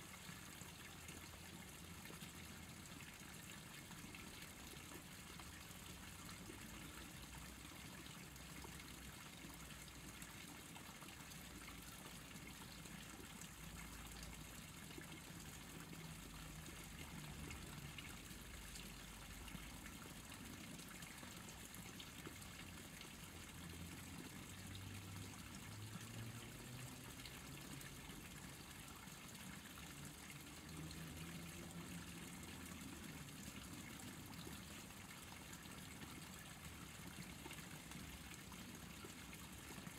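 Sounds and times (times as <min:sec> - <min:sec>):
stream water trickling: 0:00.0 - 0:39.9.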